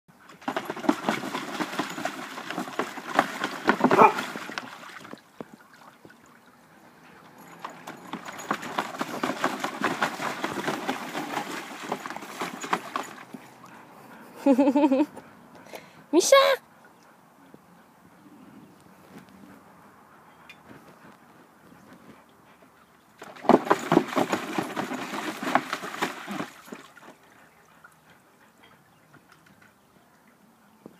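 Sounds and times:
dog splashing in shallow water: 0.3s - 13.7s, 23.2s - 27.3s.

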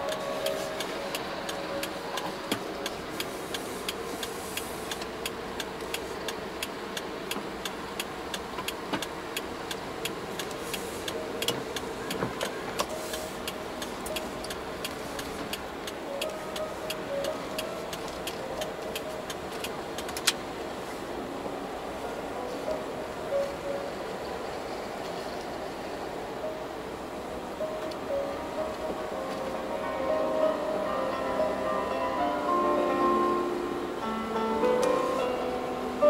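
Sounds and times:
indicator relay ticking: 0.0s - 20.4s
car cabin noise: 0.0s - 36.0s.

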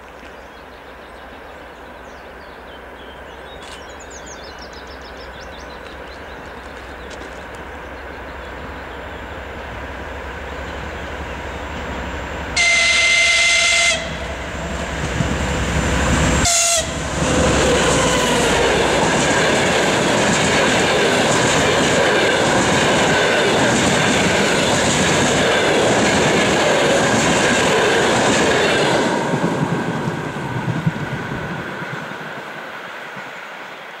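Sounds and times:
diesel locomotive engine rumble: 0.8s - 34.0s
train horn: 12.6s - 14.6s, 16.3s - 18.6s.

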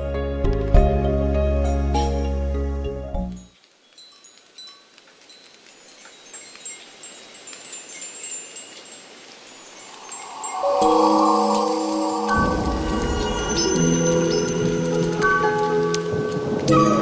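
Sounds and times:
soft airy hiss: 3.5s - 16.7s
wind chimes tinkling: 3.8s - 17.0s
low sustained music tones: 8.6s - 17.0s.

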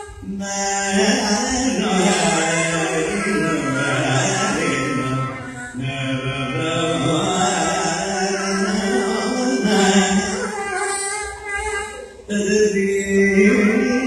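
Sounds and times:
man singing: 0.0s - 10.8s, 12.2s - 14.0s.

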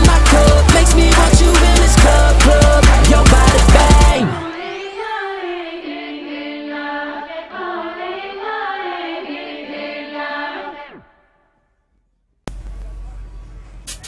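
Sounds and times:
music with sung vocals: 0.0s - 11.2s.

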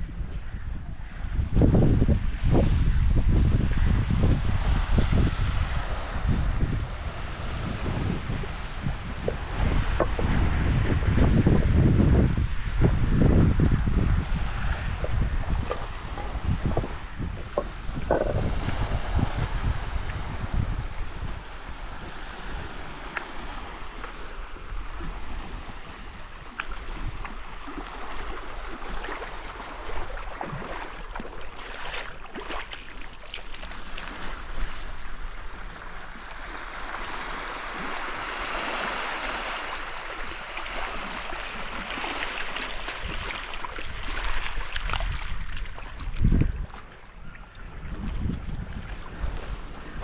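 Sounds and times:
wind rumbling on microphone: 0.0s - 50.0s
small waves lapping on rocky shore: 21.2s - 50.0s.

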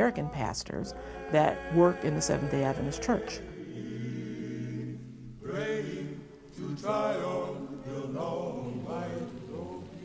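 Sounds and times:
slow singing: 0.0s - 10.0s.

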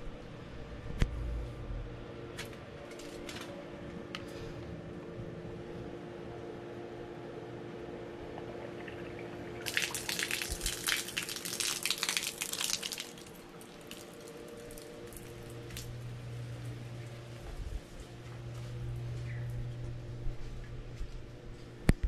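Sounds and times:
water dripping: 8.2s - 17.2s
shower water splashing on stones: 9.5s - 16.0s.

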